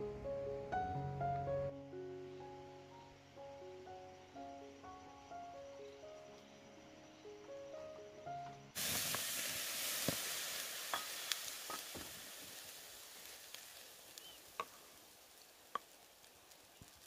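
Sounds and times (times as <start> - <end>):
food sizzling: 8.8 - 17.0.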